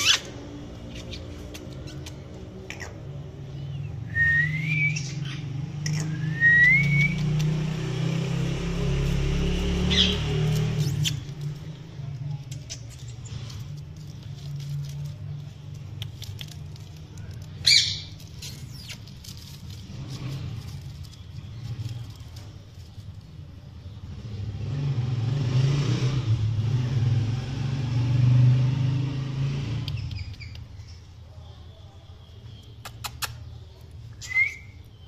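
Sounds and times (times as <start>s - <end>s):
faint bird chirps and clicks: 0.1s - 3.2s, 4.9s - 7.6s, 10.5s - 19.3s, 29.8s - 35.0s
parakeet shrill call: 17.6s - 18.1s.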